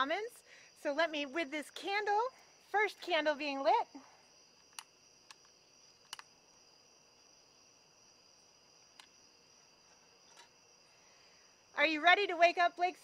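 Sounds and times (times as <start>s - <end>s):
crickets trilling: 0.0s - 13.0s
light clicks: 4.6s - 6.3s.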